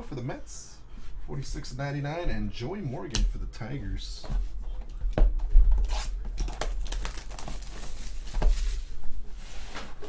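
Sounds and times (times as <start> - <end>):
foil wrapper crinkling: 5.8 - 8.9.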